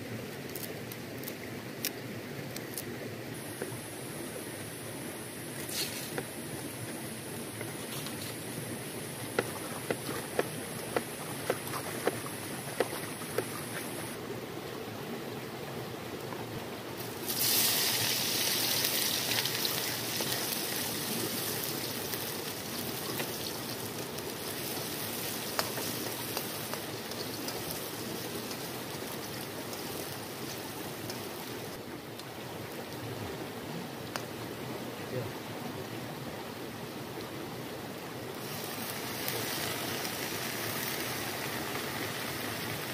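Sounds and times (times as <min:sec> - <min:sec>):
river stream flowing: 0:03.0 - 0:42.9
food sizzling in hot oil: 0:17.0 - 0:31.8, 0:38.4 - 0:42.9.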